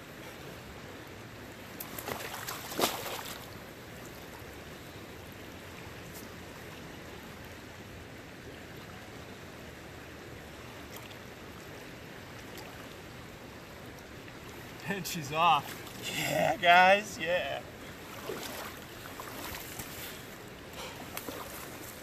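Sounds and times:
fish splashing in water: 1.8s - 3.6s, 18.0s - 20.0s, 20.9s - 22.0s
fast-flowing creek rushing: 10.3s - 22.0s.

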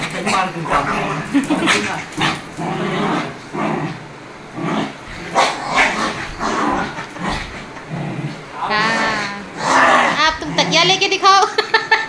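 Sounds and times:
small dog growling: 0.1s - 11.0s.

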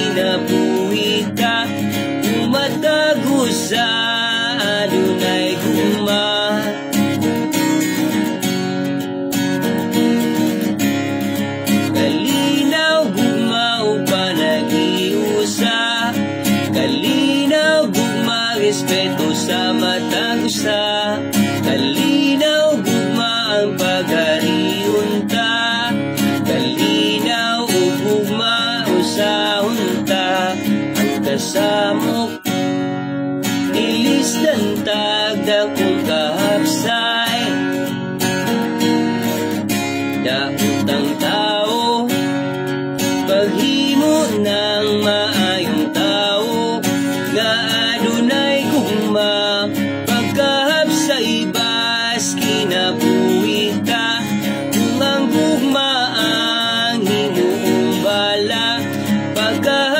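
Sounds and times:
man singing: 0.0s - 8.5s, 9.6s - 59.9s
acoustic guitar strumming: 0.0s - 59.9s.

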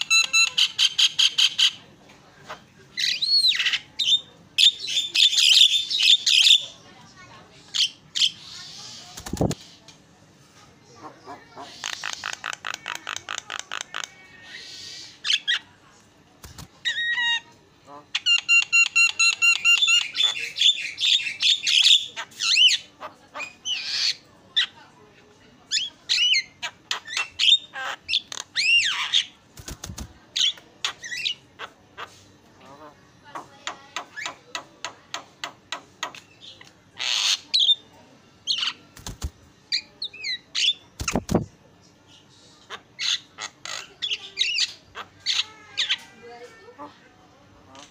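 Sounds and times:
bird singing: 18.1s - 24.8s.

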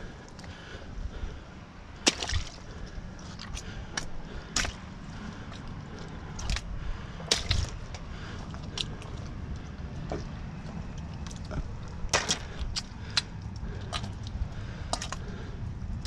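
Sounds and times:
squid hitting ice: 2.0s - 2.6s, 7.3s - 7.8s, 12.1s - 12.6s
squid slapping on wet concrete: 2.0s - 15.4s.

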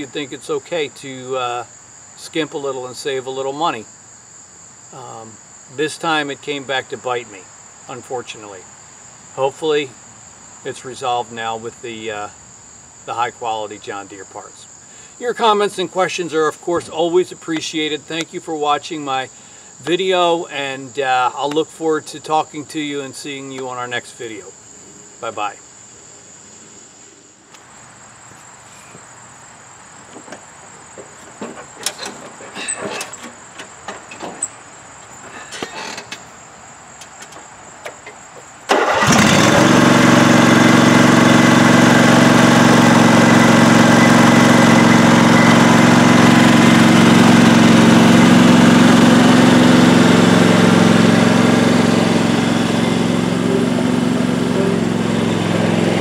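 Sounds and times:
crickets chirping: 0.0s - 56.0s
lawn tractor engine running: 37.0s - 56.0s.

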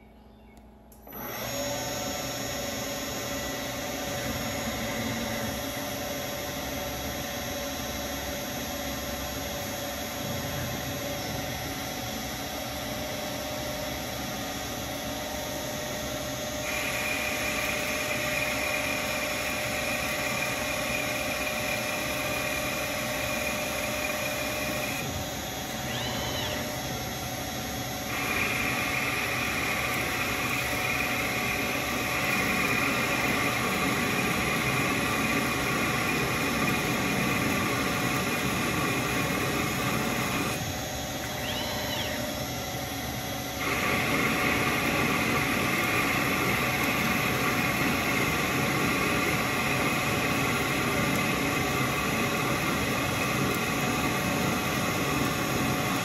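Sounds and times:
machine whine: 0.0s - 56.0s
lathe cutting hiss: 16.6s - 25.1s, 28.0s - 41.2s, 43.6s - 56.0s.

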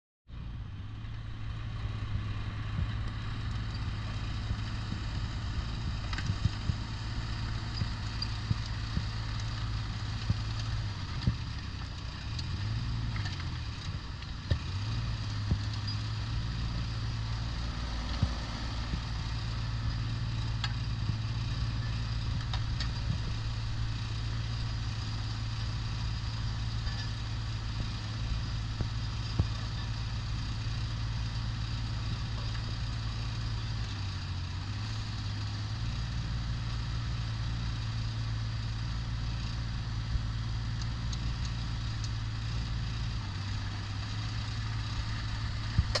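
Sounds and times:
excavator diesel engine running: 0.3s - 46.0s.

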